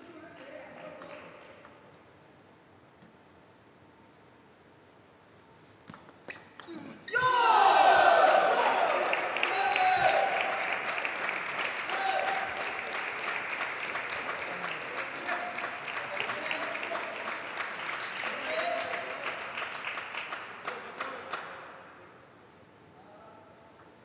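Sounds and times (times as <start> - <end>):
audience applauding: 8.2 - 21.6.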